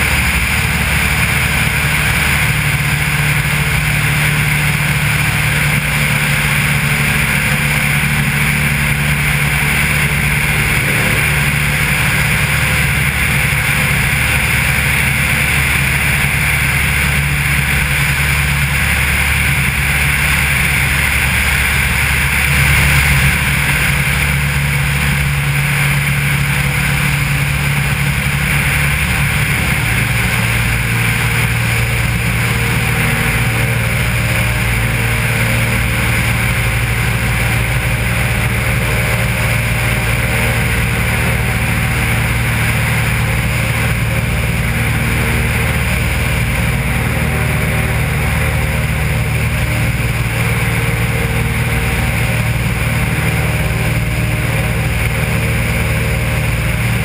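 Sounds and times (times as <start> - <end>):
propeller plane engine droning: 0.0 - 57.0
wind rushing: 21.8 - 25.0.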